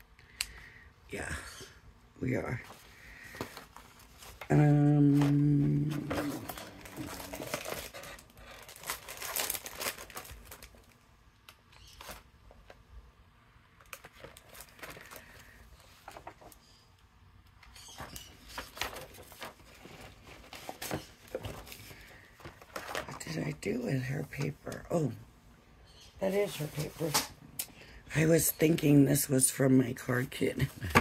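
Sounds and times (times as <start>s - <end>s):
paper rustling and sliding: 14.0s - 16.6s, 18.0s - 23.2s.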